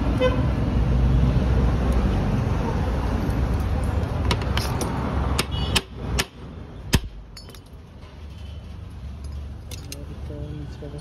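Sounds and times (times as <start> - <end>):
traffic noise: 0.0 - 11.0.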